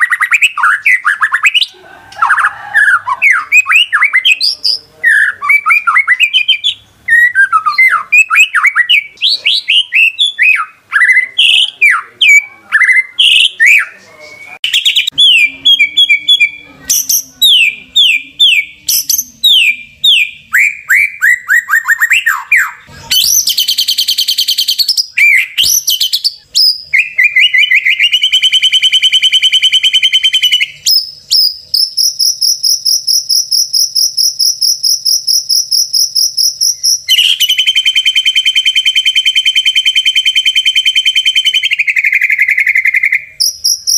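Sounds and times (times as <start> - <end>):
bird singing whistled phrases: 0.0 - 33.6, 35.7 - 43.9
shrill cricket-like pulsing: 28.1 - 41.7, 43.4 - 43.9.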